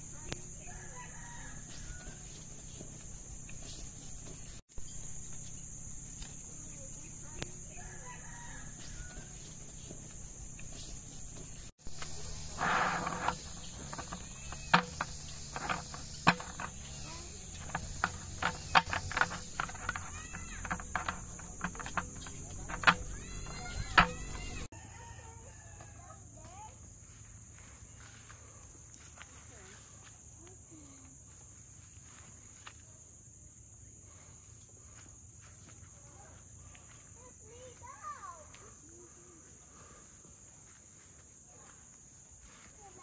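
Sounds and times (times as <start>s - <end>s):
high-pitched insect chorus: 0.0s - 43.0s
sharp clicks and knocks: 10.0s - 24.7s.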